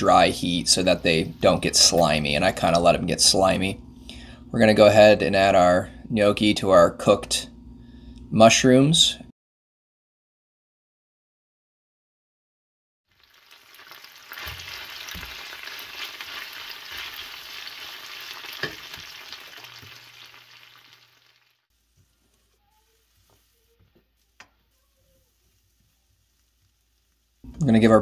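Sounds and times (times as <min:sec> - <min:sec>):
food sizzling in a pan: 0:13.1 - 0:28.0.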